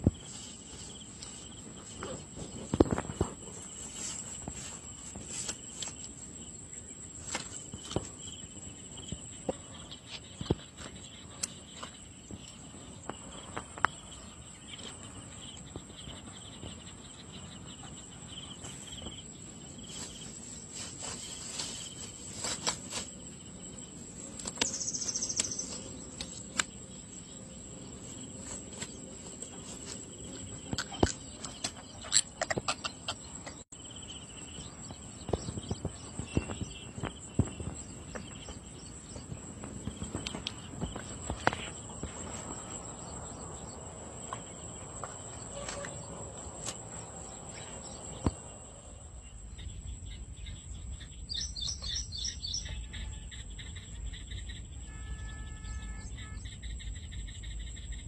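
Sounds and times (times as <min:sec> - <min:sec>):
insects shrilling: 0:15.0 - 0:49.0.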